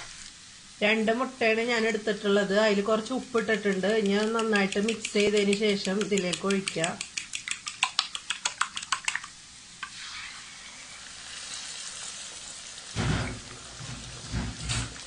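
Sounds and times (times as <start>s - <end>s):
eggs sizzling in pan: 0.0s - 15.0s
spoon beating eggs in bowl: 3.0s - 9.4s.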